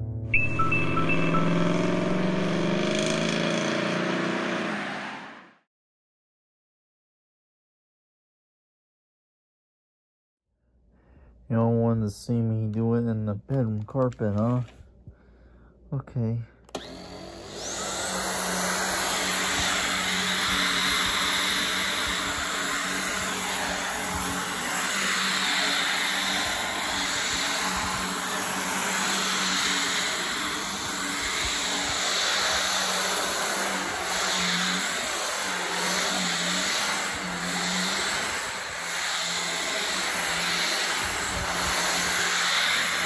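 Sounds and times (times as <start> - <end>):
vacuum cleaner on carpet: 0.9 - 5.4, 16.7 - 43.0.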